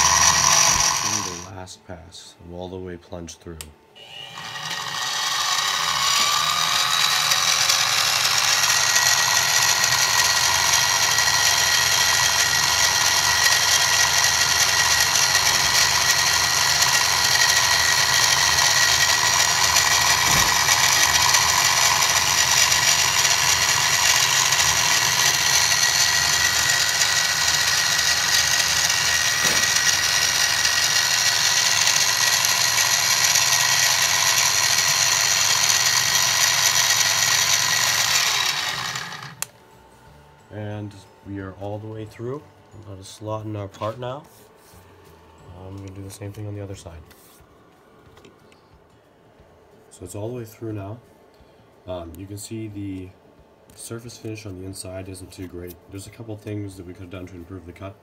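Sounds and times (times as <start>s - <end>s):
end mill cutting aluminum: 0.0s - 1.5s, 4.0s - 39.5s
mini mill whining: 0.0s - 1.5s, 4.0s - 44.4s.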